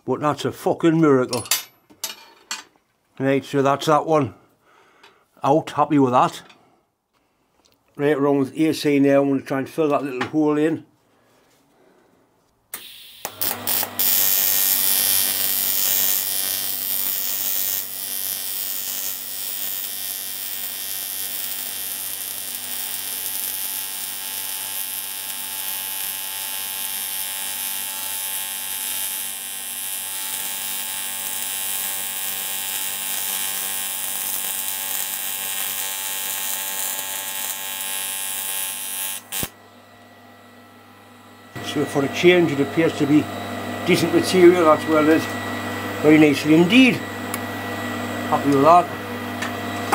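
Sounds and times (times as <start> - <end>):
welding arc buzzing: 12.7 - 39.6.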